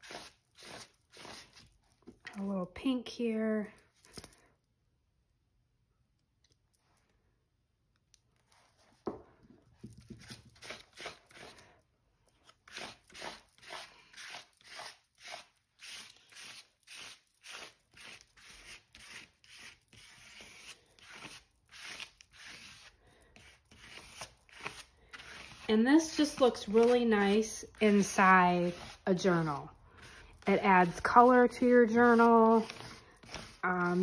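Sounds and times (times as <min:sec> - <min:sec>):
scratchy paint strokes on paper: 0:12.7 - 0:34.0.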